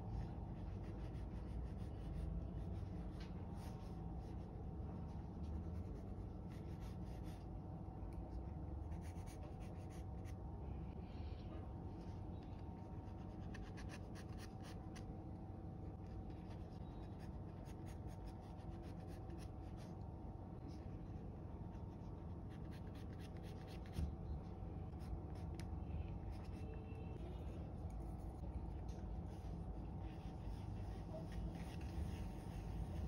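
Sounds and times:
pencil scratching on paper: 0:08.9 - 0:10.4, 0:29.3 - 0:33.0.

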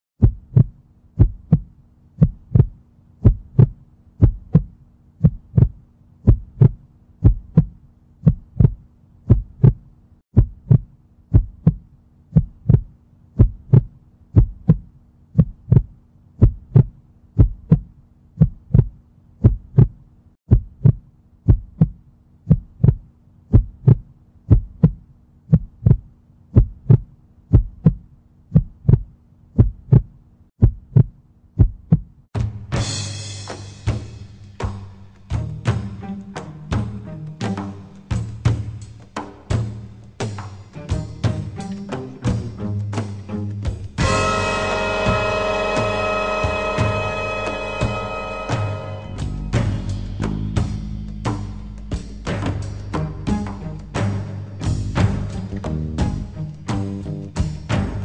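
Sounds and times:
heartbeat thumps: 0:00.2 - 0:32.2.

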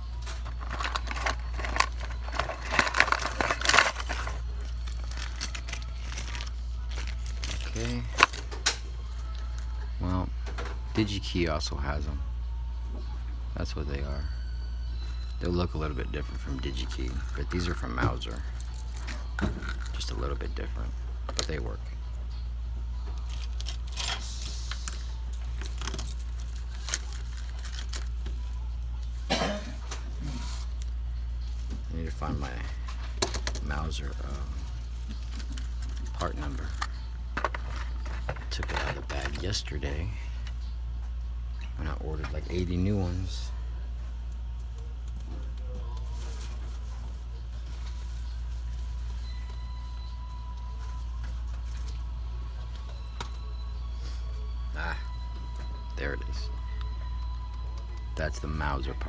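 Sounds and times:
steady low hum: 0:00.0 - 0:59.0
paper rustling and crinkling: 0:00.2 - 0:08.6, 0:23.2 - 0:28.5, 0:45.0 - 0:49.2.

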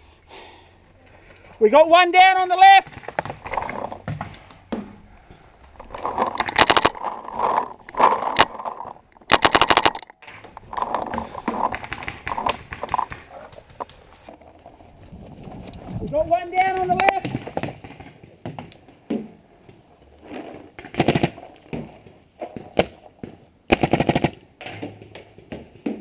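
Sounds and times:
paintball markers firing: 0:20.8 - 0:26.0.

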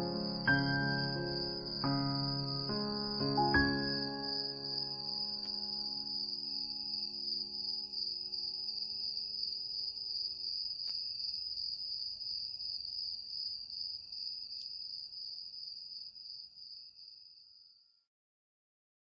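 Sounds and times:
low sustained music notes: 0:00.0 - 0:07.9
high-pitched insect-like trill: 0:00.0 - 0:10.6.

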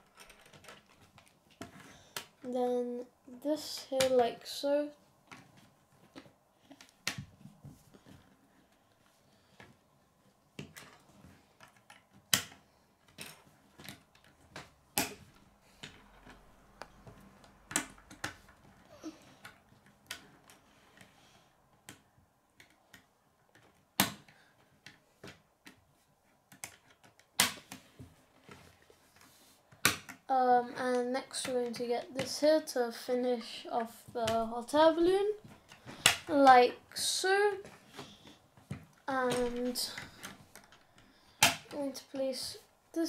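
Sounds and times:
plastic pieces clicking together: 0:00.0 - 0:02.4.

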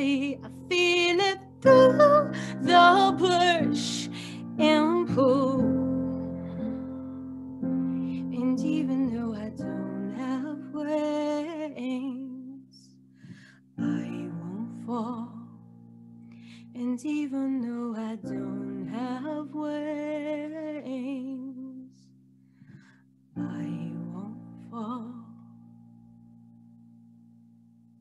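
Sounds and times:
woman singing with vibrato: 0:00.0 - 0:06.0, 0:08.3 - 0:12.8
piano chords: 0:00.0 - 0:21.6, 0:22.6 - 0:28.0.

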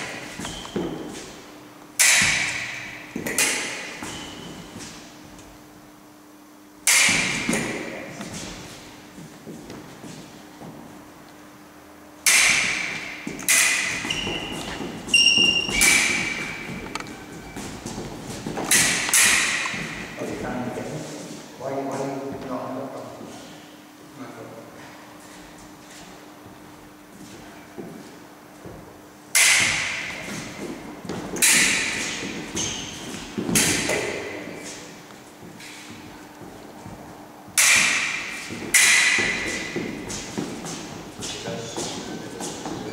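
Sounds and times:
fencing blades clashing: 0:00.0 - 0:01.4, 0:02.0 - 0:05.4, 0:06.8 - 0:08.9, 0:12.2 - 0:20.5, 0:29.3 - 0:42.9
feet stamping on wooden floor: 0:14.0 - 0:18.8, 0:30.1 - 0:31.4, 0:35.3 - 0:37.6, 0:38.3 - 0:42.9.

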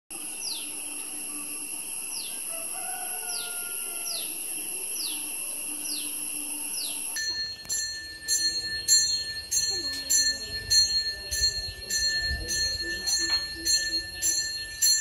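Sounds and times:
high-pitched insect drone: 0:00.1 - 0:15.0
faint rooster crow: 0:02.2 - 0:04.6.

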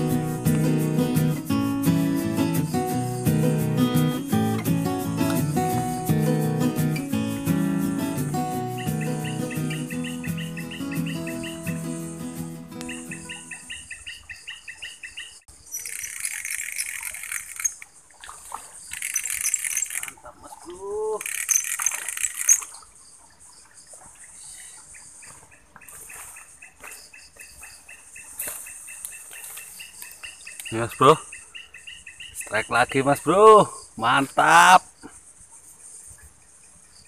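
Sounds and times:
insect buzzing bursts: 0:00.0 - 0:13.7, 0:15.6 - 0:17.9, 0:18.9 - 0:20.1, 0:21.2 - 0:22.7
insects chirping: 0:00.0 - 0:37.0.

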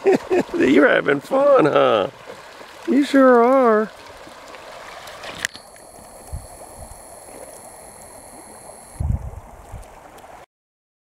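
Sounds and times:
creek water over stones: 0:00.0 - 0:10.5
faint steady high tone: 0:05.5 - 0:09.0.

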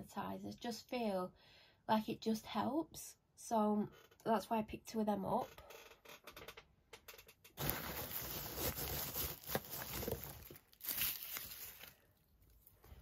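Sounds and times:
packing peanuts rustling: 0:07.6 - 0:12.2
plastic wrap crinkling: 0:07.6 - 0:12.2.

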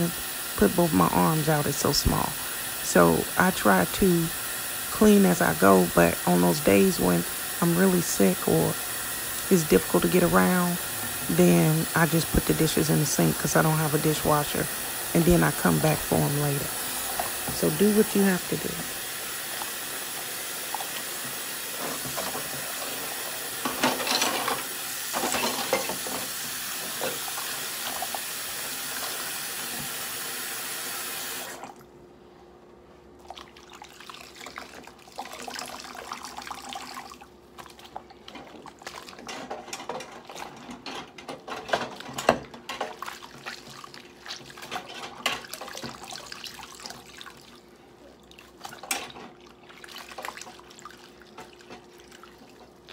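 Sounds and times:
dishes washed by hand: 0:00.0 - 0:31.7, 0:33.2 - 0:52.9.

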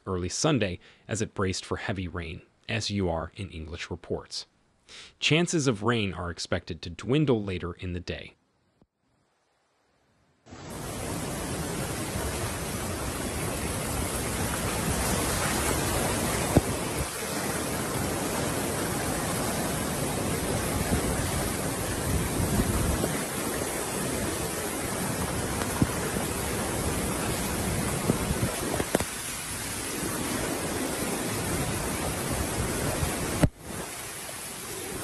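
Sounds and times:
floodwater rushing down a street: 0:10.6 - 0:35.0.

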